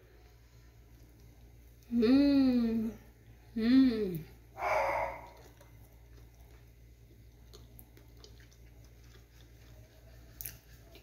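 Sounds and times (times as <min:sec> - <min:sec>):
person chewing cake: 0:04.6 - 0:11.0
lip and tongue clicks: 0:05.2 - 0:06.7, 0:07.4 - 0:11.0.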